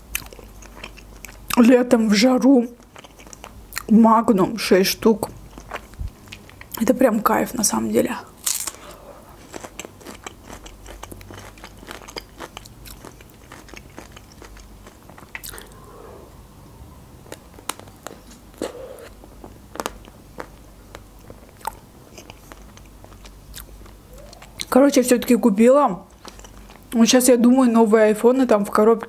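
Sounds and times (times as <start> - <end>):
chewing: 0.1 - 1.6, 2.8 - 3.9, 8.4 - 16.3, 17.2 - 24.8, 26.1 - 27.0
wet mouth clicks: 15.3 - 15.9, 21.6 - 22.4.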